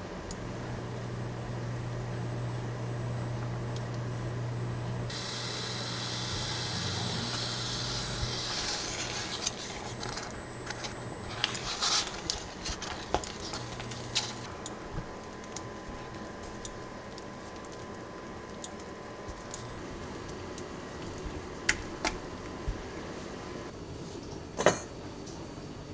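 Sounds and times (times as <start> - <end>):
low hum: 0.4 - 23.7
hiss: 5.1 - 9.4.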